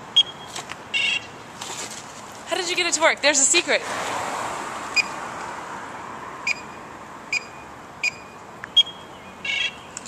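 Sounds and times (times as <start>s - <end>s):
card reader beeping: 0.2s - 1.3s, 6.5s - 9.8s
car passing: 2.5s - 9.7s.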